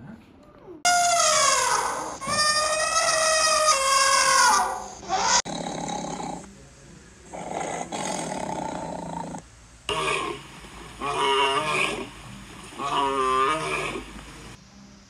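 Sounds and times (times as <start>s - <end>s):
tiger roaring: 4.3s - 6.5s, 7.3s - 14.6s
lion roaring: 4.5s - 6.5s, 7.3s - 14.6s.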